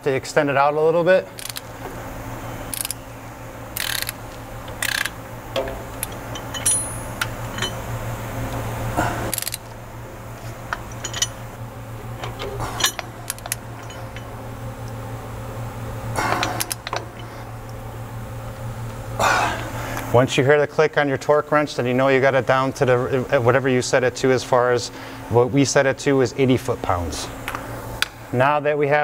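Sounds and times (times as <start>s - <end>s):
steady low hum: 0.0s - 29.0s
torque wrench ratcheting: 1.4s - 1.7s, 2.7s - 3.0s, 3.7s - 7.8s, 9.3s - 9.7s
metallic clicks and clunks: 3.8s - 7.8s, 12.2s - 14.3s.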